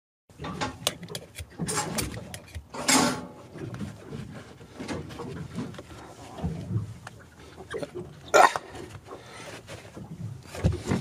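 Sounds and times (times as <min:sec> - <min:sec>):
knife scraping metal fitting: 0:00.8 - 0:03.1.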